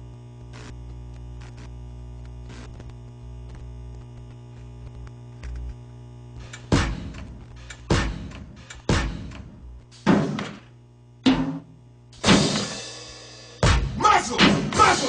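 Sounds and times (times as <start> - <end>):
electrical mains hum: 0.0 - 15.0
loud drum hit: 6.7 - 7.2, 7.9 - 9.4, 10.0 - 10.6, 11.2 - 15.0.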